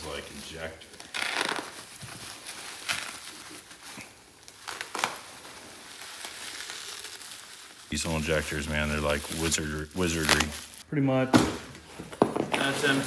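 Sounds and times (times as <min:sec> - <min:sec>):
bubble wrap crinkling: 0:00.0 - 0:10.8.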